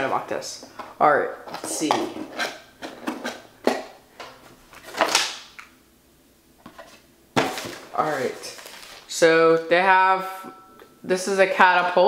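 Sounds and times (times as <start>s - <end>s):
sliding rustle: 6.7s - 9.1s.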